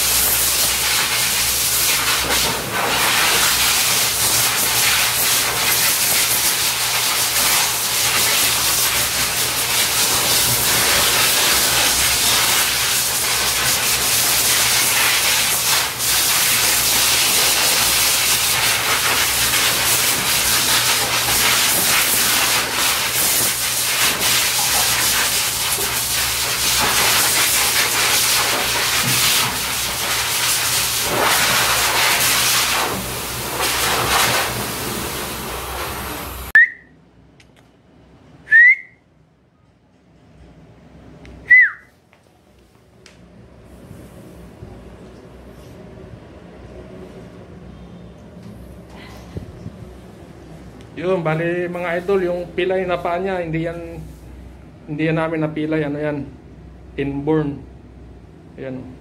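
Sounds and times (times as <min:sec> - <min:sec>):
blower dryer rushing air: 0:00.0 - 0:36.6
faint low motor hum: 0:39.1 - 0:59.0.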